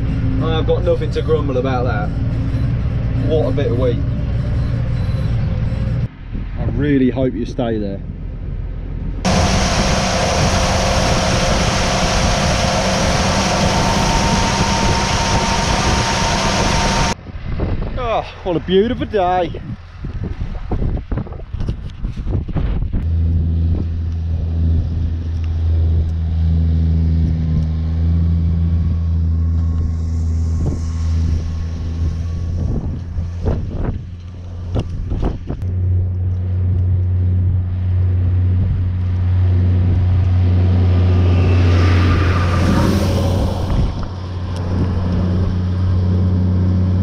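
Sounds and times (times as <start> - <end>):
tractor engine running: 0.0 - 6.1, 8.1 - 17.2, 23.0 - 47.0
rushing noise: 9.2 - 19.2, 29.0 - 36.1, 37.6 - 47.0.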